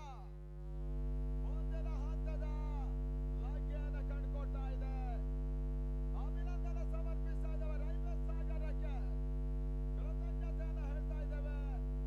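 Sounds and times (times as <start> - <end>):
loud electrical hum: 0.0 - 12.0.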